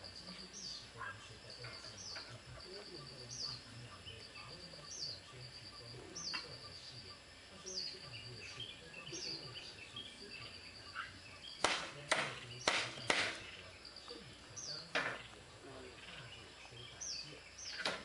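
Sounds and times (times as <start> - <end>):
loud rustling knocks: 11.6 - 13.4.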